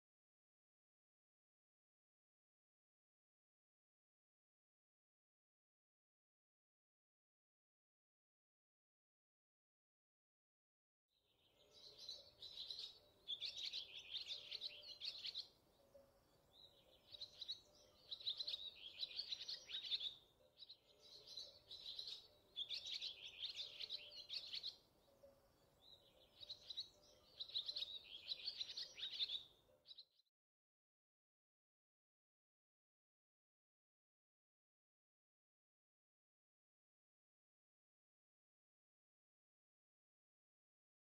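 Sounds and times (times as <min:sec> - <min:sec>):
songbird chirping: 0:11.1 - 0:30.4.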